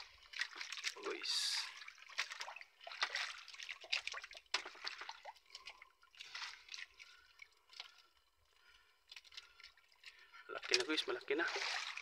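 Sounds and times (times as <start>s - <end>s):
water dripping off net: 0.0s - 8.3s.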